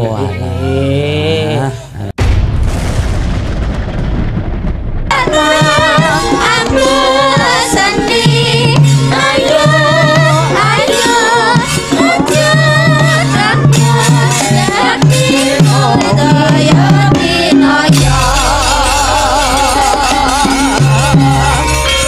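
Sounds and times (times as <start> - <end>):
drumming: 2.2 - 22.0
women singing together: 5.1 - 21.7
gamelan music: 5.4 - 22.0.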